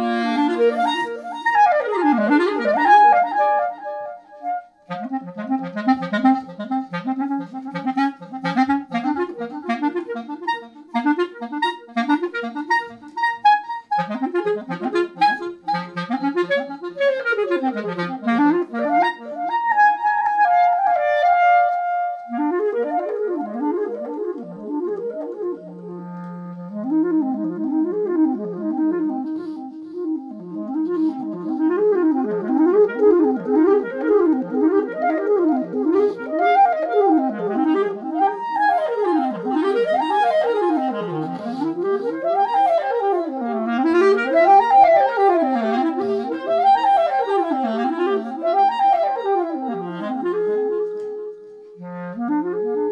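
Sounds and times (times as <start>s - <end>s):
looped clarinet improvising: 0.0s - 52.9s.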